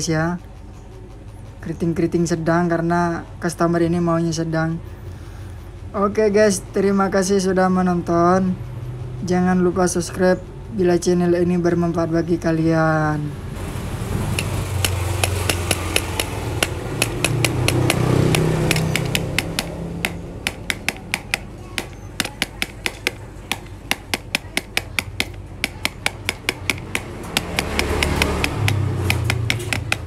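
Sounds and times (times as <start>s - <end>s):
sharp clicks: 14.3s - 30.0s.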